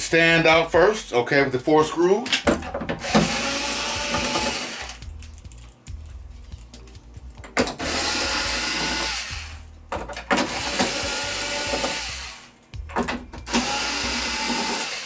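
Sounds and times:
cordless drill running: 0:03.0 - 0:05.0, 0:07.8 - 0:09.6, 0:10.4 - 0:12.6, 0:13.5 - 0:15.0.

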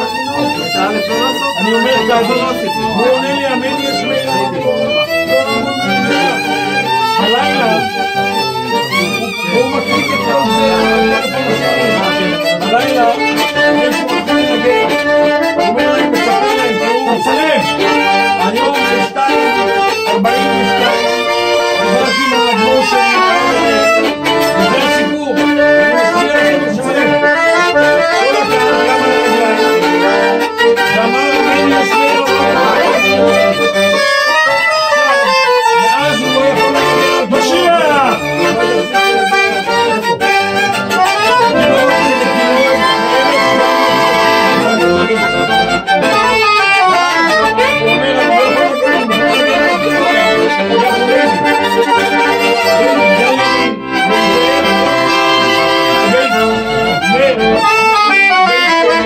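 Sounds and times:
held accompanying chords: 0:00.0 - 0:59.0
violin melody: 0:00.0 - 0:59.0.

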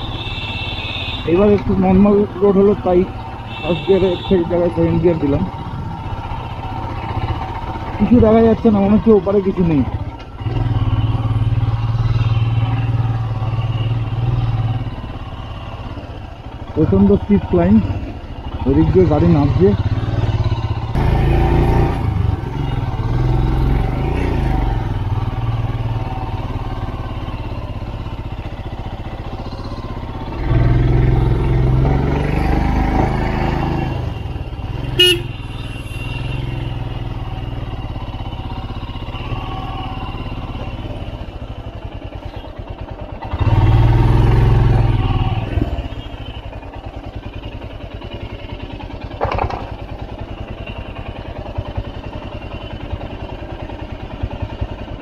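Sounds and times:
motorcycle engine climbing: 0:00.0 - 0:55.0
horn toot: 0:03.5 - 0:04.7, 0:34.8 - 0:36.7.

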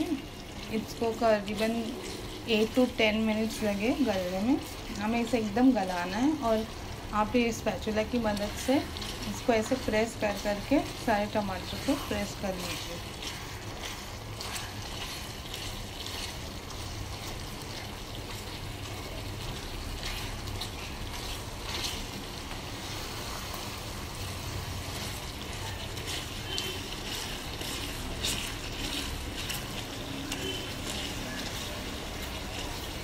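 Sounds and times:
wet stirring in a pan: 0:00.0 - 0:33.0
spatula scraping and tapping pan: 0:11.7 - 0:23.6, 0:24.9 - 0:33.0.

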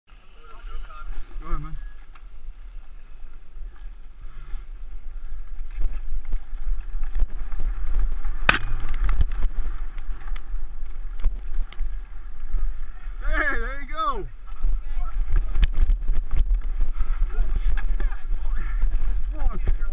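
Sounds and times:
bike tyres rumbling: 0:00.1 - 0:19.9
wind on microphone: 0:14.2 - 0:19.9.

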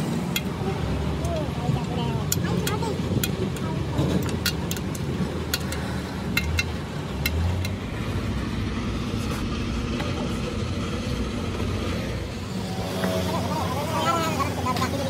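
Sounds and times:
workshop low rumble: 0:00.0 - 0:15.0
sharp clicks and taps: 0:01.2 - 0:07.8.

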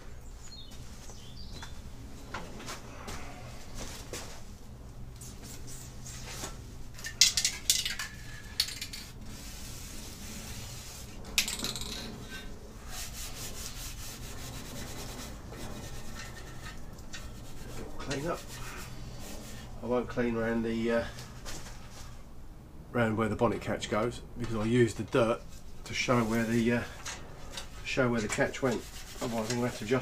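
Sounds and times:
steady low hum: 0:00.0 - 0:30.0
cloth rag wiping plastic: 0:09.3 - 0:11.2, 0:12.8 - 0:19.7, 0:25.3 - 0:26.9, 0:27.8 - 0:30.0.

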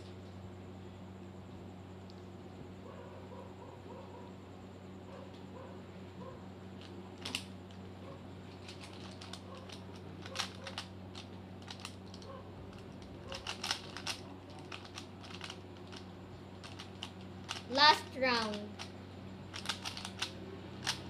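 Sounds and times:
low steady hum: 0:00.0 - 0:21.0
puzzle cube clicking: 0:08.6 - 0:10.9, 0:11.6 - 0:18.9, 0:19.5 - 0:21.0.

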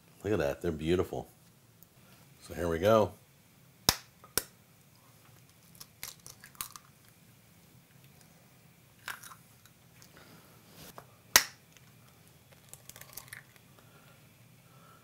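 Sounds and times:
eggshells cracking: 0:05.4 - 0:07.2, 0:09.0 - 0:09.7, 0:11.4 - 0:13.7.

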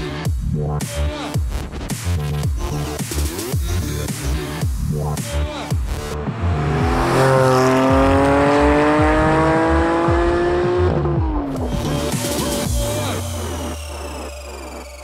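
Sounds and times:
electronic music beat: 0:00.0 - 0:15.0
car engine accelerating: 0:05.6 - 0:15.0.

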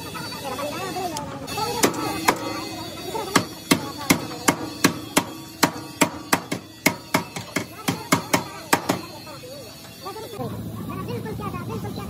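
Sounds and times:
hammer striking sheet metal: 0:01.7 - 0:09.2.

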